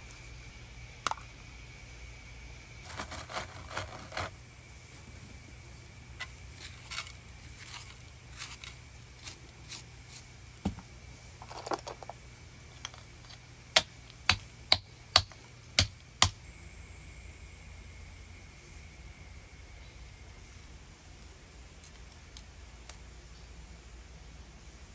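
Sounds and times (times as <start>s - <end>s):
stone scraping: 2.8s - 4.4s.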